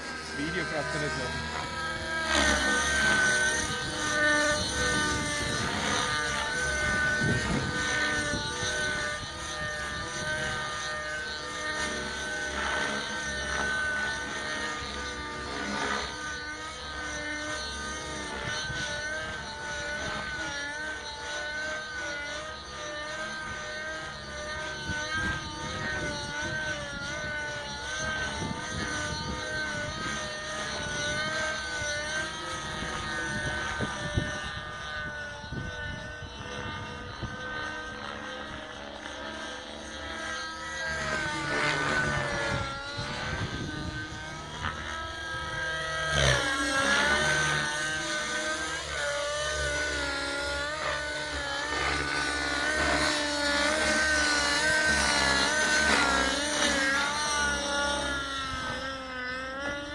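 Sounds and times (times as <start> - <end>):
model helicopter engine whine: 0.0 - 59.9.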